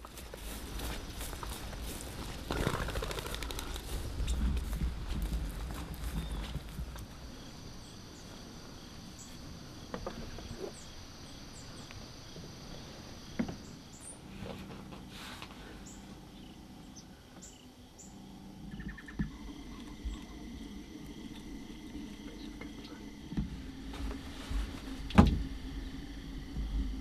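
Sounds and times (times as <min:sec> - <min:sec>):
insects trilling: 0:00.0 - 0:27.0
low background rumble: 0:00.0 - 0:27.0
bird chirps: 0:15.8 - 0:20.4.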